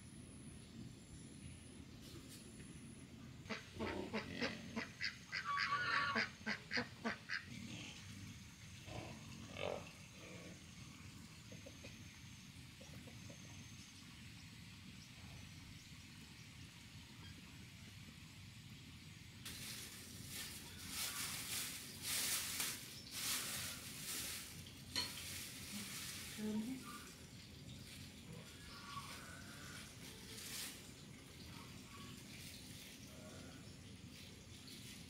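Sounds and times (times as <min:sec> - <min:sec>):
waterfowl honking: 0:03.5 - 0:07.5.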